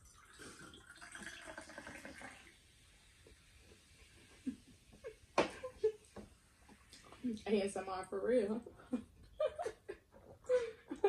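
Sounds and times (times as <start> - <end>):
soda pouring and fizzing over ice: 0.0 - 4.2.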